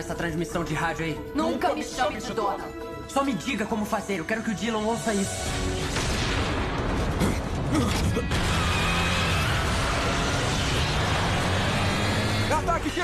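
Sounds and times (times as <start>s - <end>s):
sports car engine revving hard: 8.4s - 12.7s.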